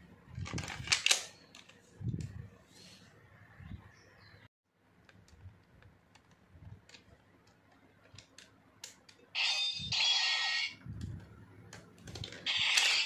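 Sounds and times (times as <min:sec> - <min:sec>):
toy electronic sound effect: 0:09.4 - 0:10.8, 0:12.5 - 0:13.0.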